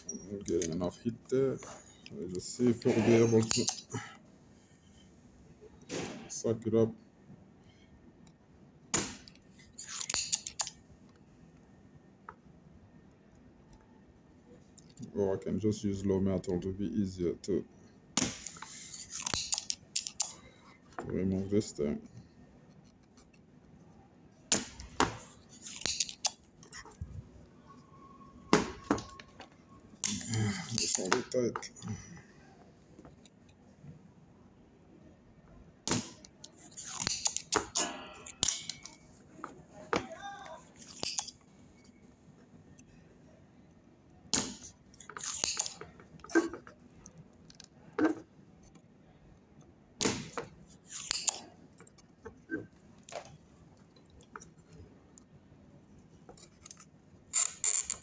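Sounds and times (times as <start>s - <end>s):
soldering clicks and scrapes: 9.3s - 10.8s, 36.4s - 39.0s, 40.8s - 41.4s, 44.6s - 47.7s, 50.6s - 52.1s.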